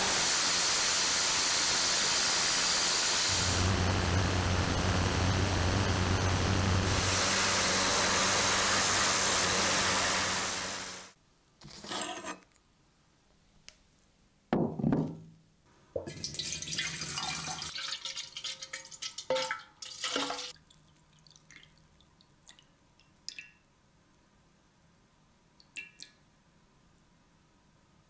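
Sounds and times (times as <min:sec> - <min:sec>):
water splashing into glass bowl: 0:16.0 - 0:21.8
water dripping: 0:16.0 - 0:23.7, 0:25.6 - 0:26.3.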